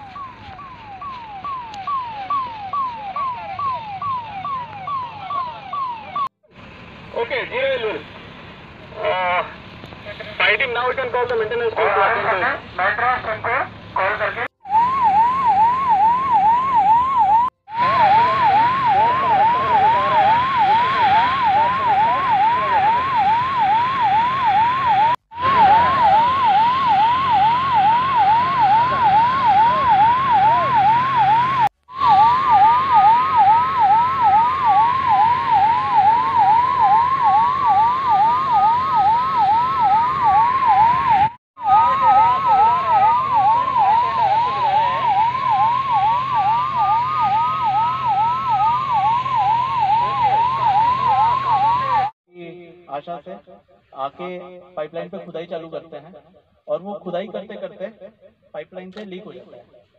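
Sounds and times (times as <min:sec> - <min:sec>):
siren wail: 0:00.0 - 0:06.4, 0:08.9 - 0:52.2
siren yelp: 0:00.0 - 0:06.4, 0:09.0 - 0:52.2.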